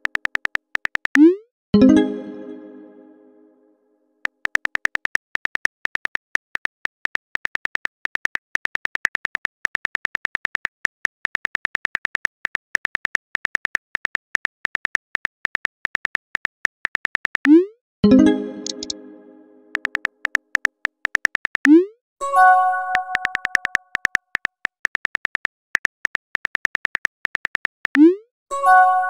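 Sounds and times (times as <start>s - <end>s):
phone keyboard typing clicks: 0.0s - 1.3s, 4.2s - 17.6s, 18.6s - 19.0s, 19.7s - 21.8s, 22.9s - 28.0s.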